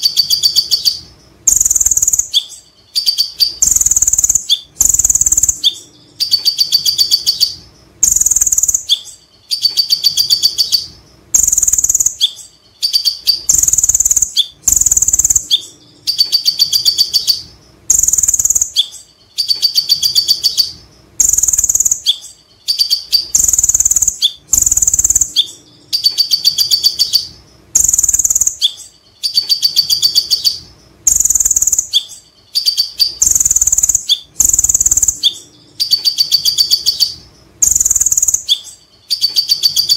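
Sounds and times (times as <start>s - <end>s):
sunbird singing: 0.0s - 39.9s.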